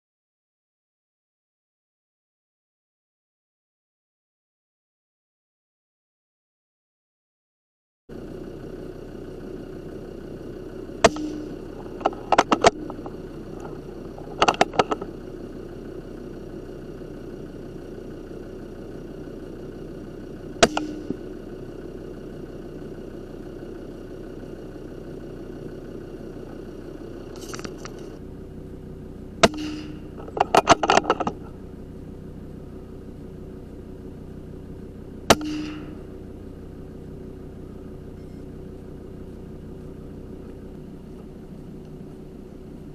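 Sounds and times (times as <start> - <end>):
engine-like hum: 8.1 - 42.9
sharp short clicks and knocks: 11.0 - 15.1, 29.4 - 31.5.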